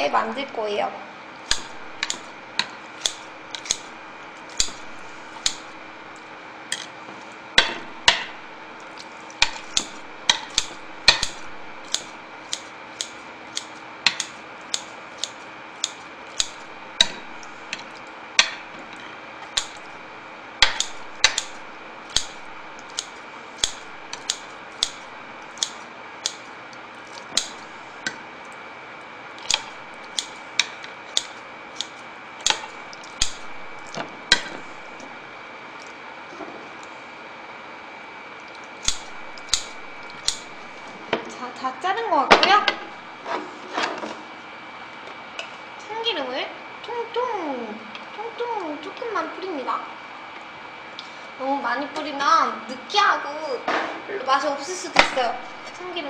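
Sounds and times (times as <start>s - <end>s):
scissors snipping food: 1.5s - 5.8s, 7.6s - 18.6s, 19.4s - 20.0s, 20.6s - 27.8s, 29.4s - 35.1s, 38.4s - 40.9s.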